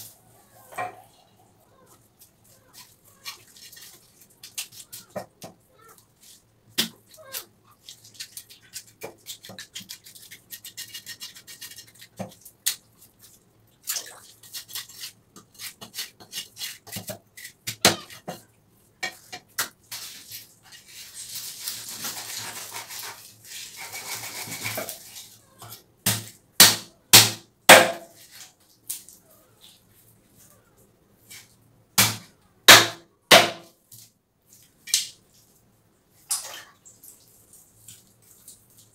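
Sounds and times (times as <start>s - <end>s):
knife scraping fish: 2.7s - 5.2s, 7.3s - 12.2s, 14.4s - 18.3s, 19.9s - 25.3s.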